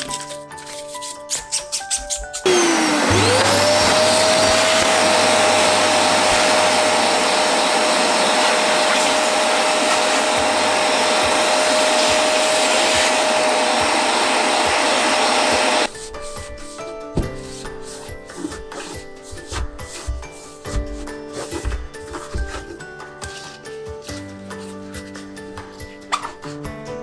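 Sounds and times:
small electric motor whining: 2.4s - 15.9s.

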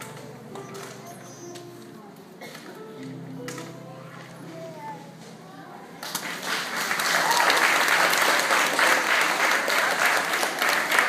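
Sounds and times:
audience applauding: 6.0s - 11.0s.

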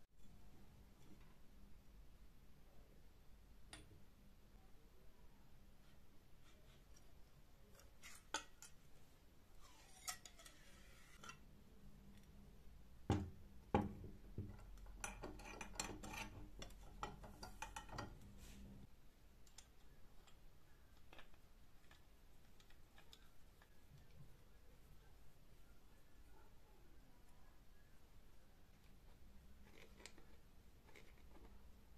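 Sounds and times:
metal pump parts clicking: 14.5s - 18.2s.

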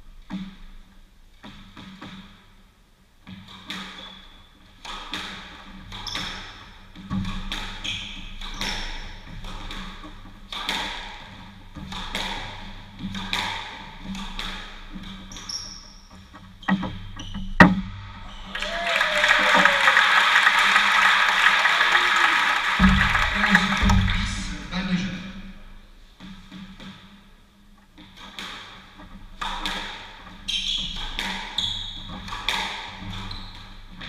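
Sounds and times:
squash ball hit by rackets: 4.8s - 15.5s, 22.8s - 24.5s, 28.0s - 34.0s
people clapping: 18.3s - 24.7s.

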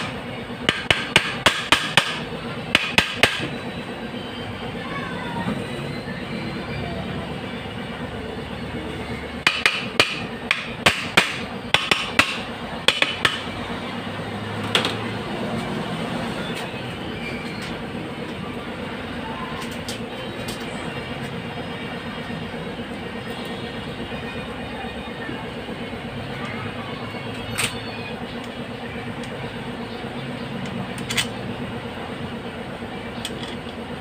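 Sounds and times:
steady background hum: 0.0s - 34.0s
hammer tapping on metal: 0.7s - 3.5s, 9.4s - 13.5s.

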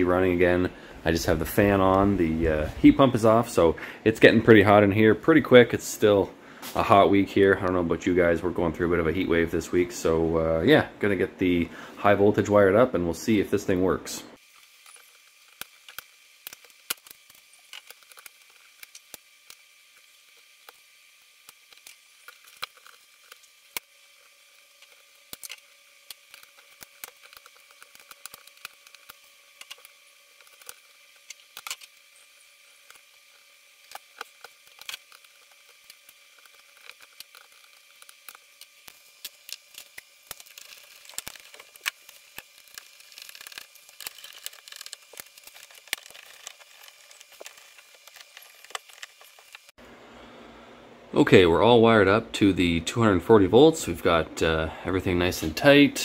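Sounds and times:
clicks and rustles of handling wire: 14.5s - 49.7s.

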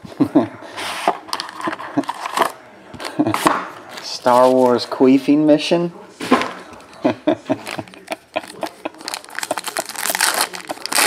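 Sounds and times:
foil wrapper crinkling: 7.6s - 11.0s.

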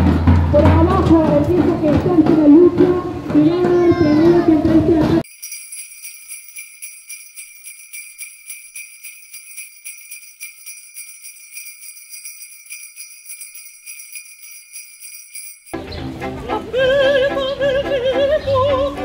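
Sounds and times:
jingle bells shaken: 5.2s - 15.8s.

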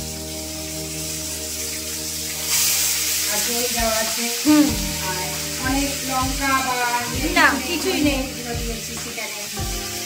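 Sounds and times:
background music with held notes: 0.0s - 10.0s
chicken sizzling in hot oil: 0.0s - 10.0s
person speaking: 4.4s - 4.8s, 7.0s - 8.4s.

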